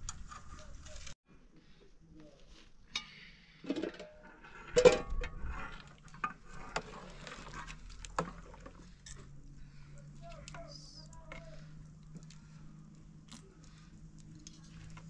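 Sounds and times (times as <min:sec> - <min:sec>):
metal cookware clanking: 0:03.0 - 0:05.5.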